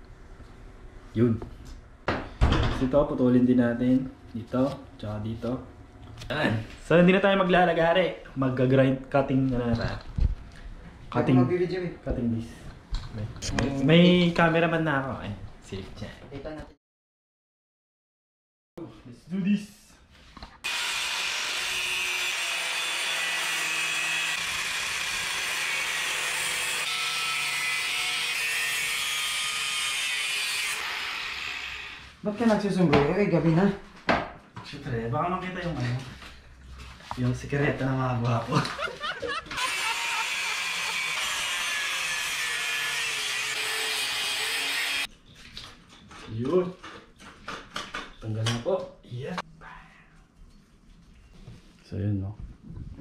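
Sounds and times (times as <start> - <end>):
angle grinder cutting metal tube: 20.6 - 32.2, 39.5 - 45.1.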